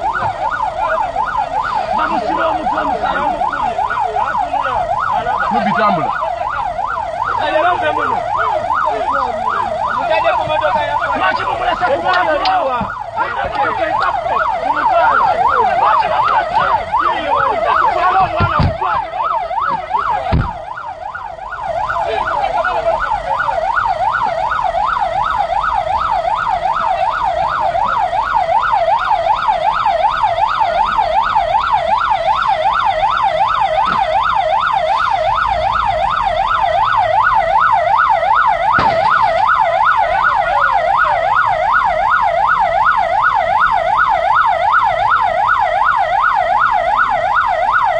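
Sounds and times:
emergency vehicle siren yelping: 0.0 - 47.9
dull low thumps: 18.2 - 20.8.

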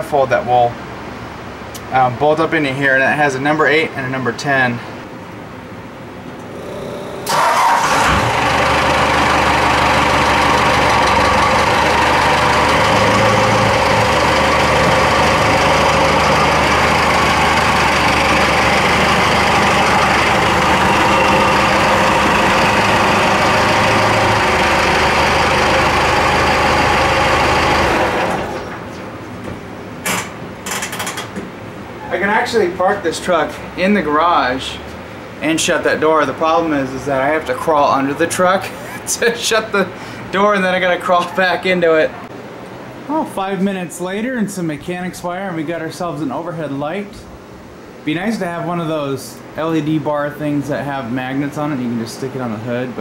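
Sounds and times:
diesel truck engine running: 6.4 - 29.0.

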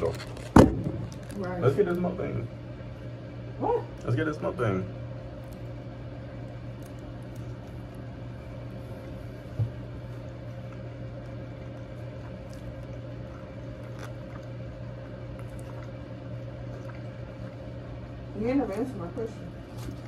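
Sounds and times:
soft chewing: 5.2 - 18.9.

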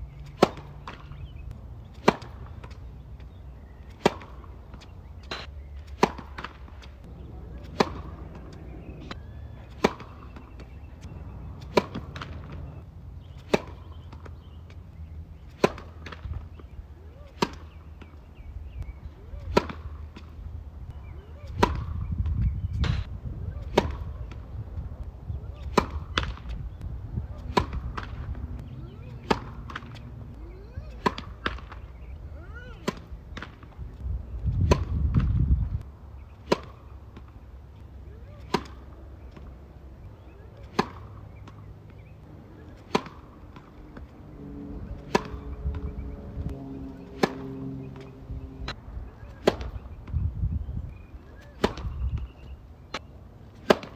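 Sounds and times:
racket hitting tennis ball: 0.1 - 14.8, 15.4 - 20.4, 21.1 - 35.4, 36.2 - 50.2, 51.3 - 53.9
low rumble: 43.3 - 49.2.

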